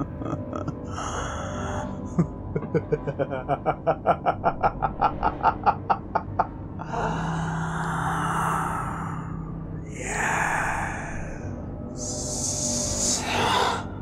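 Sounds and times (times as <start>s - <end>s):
man laughing: 0.0s - 0.9s, 2.1s - 6.6s
dark background music: 0.0s - 14.0s.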